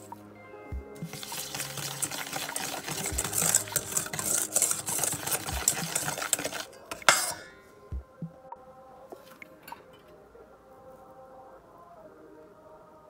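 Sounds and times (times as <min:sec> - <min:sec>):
whisk scraping in metal bowl: 0:01.1 - 0:07.4.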